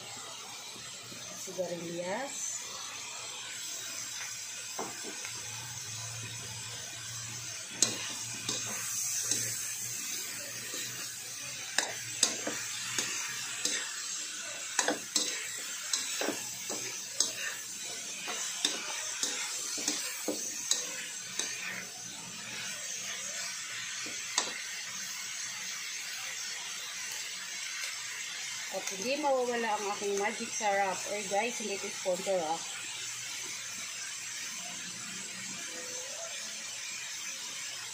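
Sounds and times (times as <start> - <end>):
food sizzling: 0.0 - 37.9.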